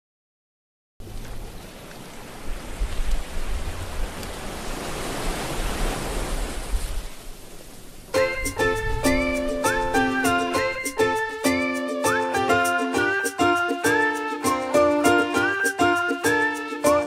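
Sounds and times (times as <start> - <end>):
sea waves breaking on beach: 1.0 - 11.8
plucked string music: 8.2 - 17.0.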